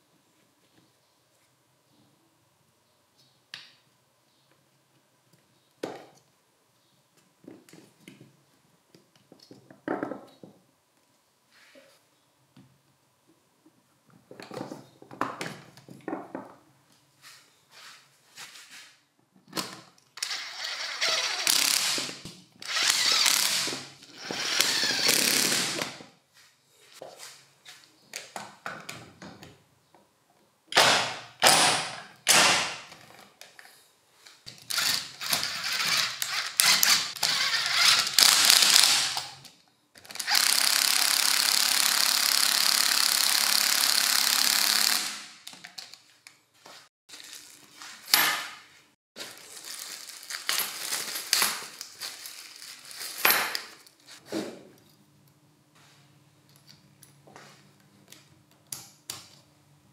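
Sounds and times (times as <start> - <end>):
rotary hammer drill hammering: 40.2 - 45.3.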